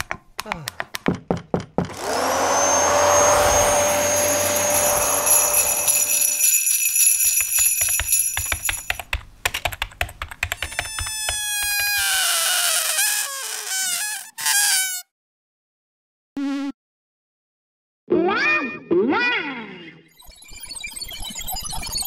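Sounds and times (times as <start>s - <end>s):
rapid clicks and taps: 0.0s - 1.9s, 7.4s - 11.8s
small electric motor whining: 1.9s - 6.7s.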